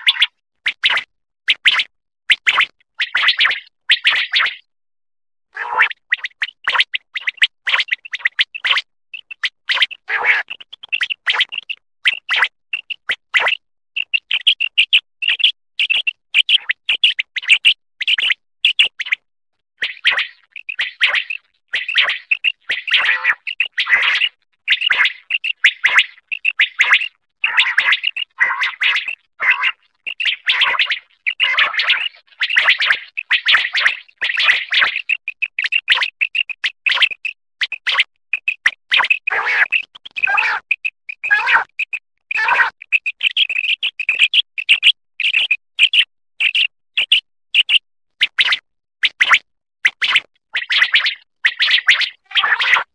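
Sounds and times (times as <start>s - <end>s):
quail whistled calls: 50.0s - 52.9s
quail calling: 51.5s - 52.9s.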